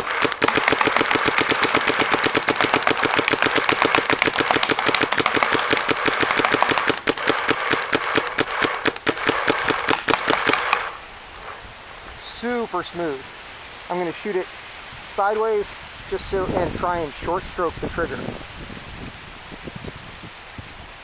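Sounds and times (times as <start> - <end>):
paintball marker firing: 0.0 - 11.0.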